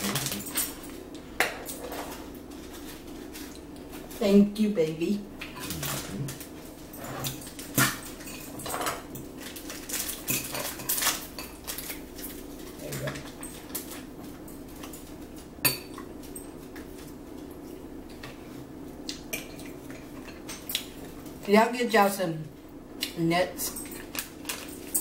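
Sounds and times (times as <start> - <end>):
metal forks clinking on plates: 23.6 - 25.0.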